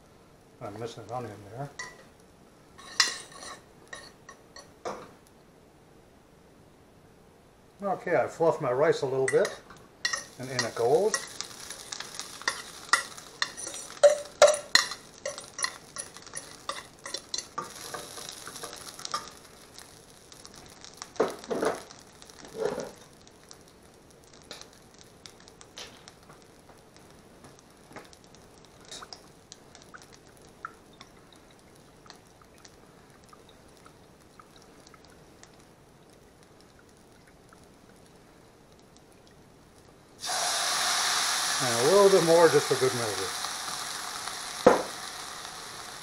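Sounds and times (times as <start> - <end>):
food sizzling in a pan: 0.6 - 5.2, 8.2 - 46.0
fork clinking against pan: 12.5 - 19.3.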